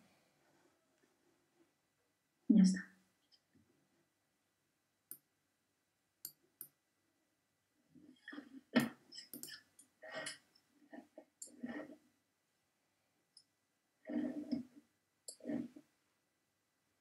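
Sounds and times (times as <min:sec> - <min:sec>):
clicks and taps: 0:08.8 - 0:09.6.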